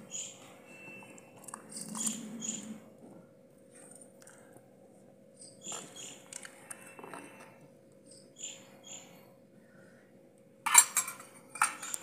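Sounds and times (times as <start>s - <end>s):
small bird chirping: 0.1s - 2.7s, 5.4s - 6.3s, 8.0s - 9.1s.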